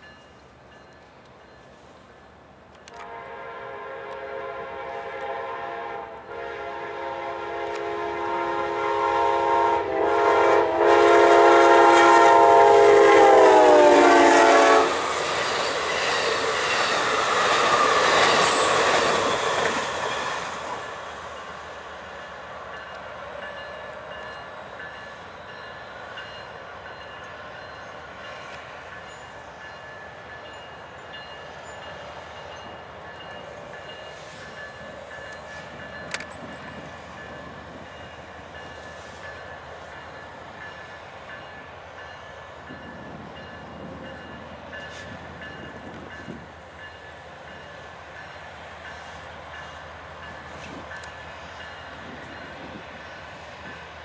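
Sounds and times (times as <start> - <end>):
train rumble and wheel noise: 0.0 - 54.0
locomotive air horn: 2.9 - 15.1.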